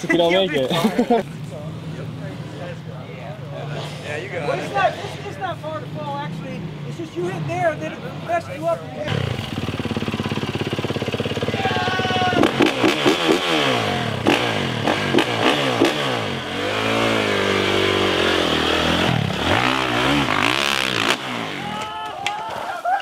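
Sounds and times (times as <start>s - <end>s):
dirt bike engine revving: 3.5s - 8.4s, 9.0s - 21.8s.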